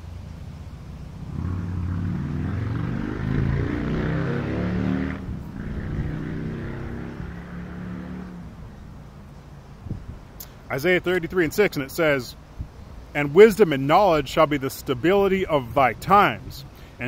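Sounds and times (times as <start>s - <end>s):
engine revving: 1.2s - 8.6s.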